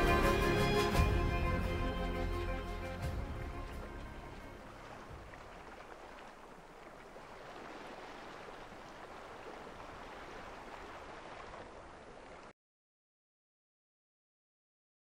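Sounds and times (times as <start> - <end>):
water lapping: 0.8 - 12.5.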